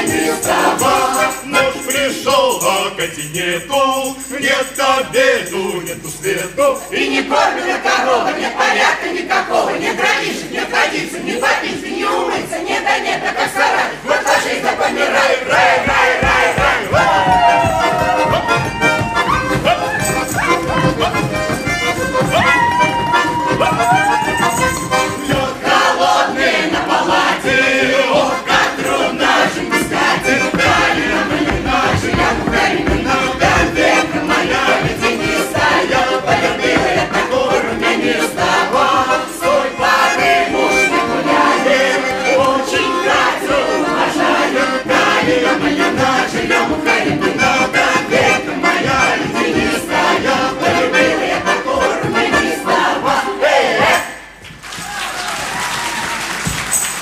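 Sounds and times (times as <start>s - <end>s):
accordion playing lively tune: 0.0s - 54.1s
folk choir singing: 0.0s - 54.4s
people shouting: 16.3s - 21.2s, 22.2s - 25.5s.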